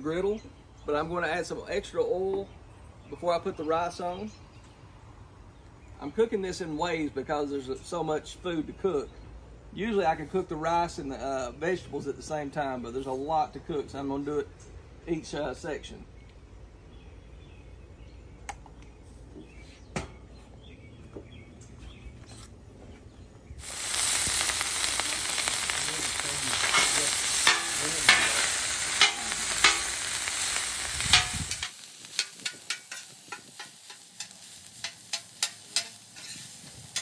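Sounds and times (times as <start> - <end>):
rice sizzling in oil: 23.6 - 37.0
spatula scraping griddle: 26.1 - 37.0
spatula clicking on griddle: 26.6 - 37.0.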